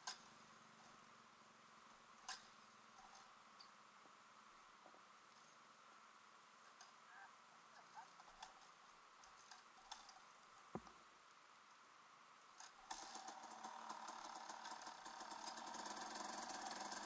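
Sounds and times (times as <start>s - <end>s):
dirt bike engine idling: 12.6s - 17.0s.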